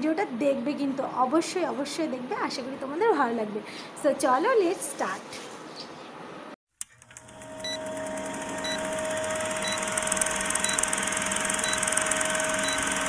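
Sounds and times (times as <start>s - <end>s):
film projector whir and hiss: 7.0s - 13.0s.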